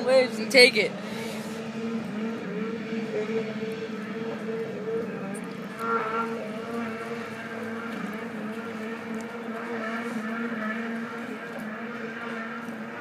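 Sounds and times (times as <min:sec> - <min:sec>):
snowmobile engine running: 0:00.0 - 0:13.0.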